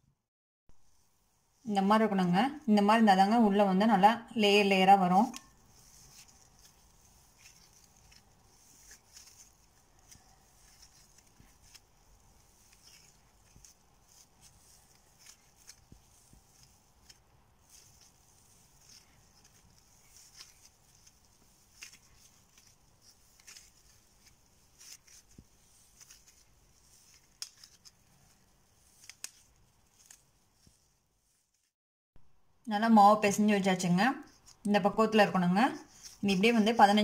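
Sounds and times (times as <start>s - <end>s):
dough kneaded by hand in bowl: 0.7s - 31.7s, 32.9s - 37.0s.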